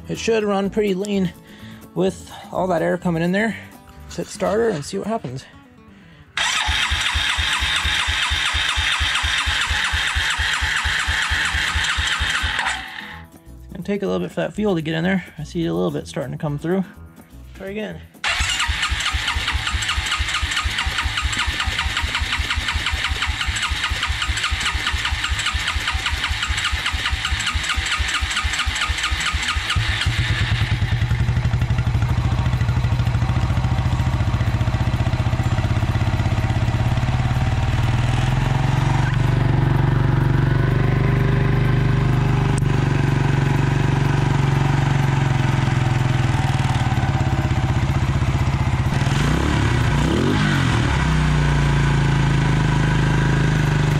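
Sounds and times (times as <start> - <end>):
engine idling: 6.4 - 13.2, 18.2 - 53.9
electric starter cranking engine: 6.4 - 13.3, 18.2 - 53.9.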